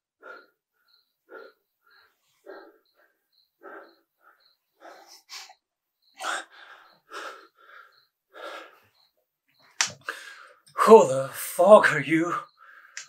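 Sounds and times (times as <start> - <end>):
man breathing noisily: 0.0 - 9.2, 10.0 - 10.7, 12.4 - 13.0.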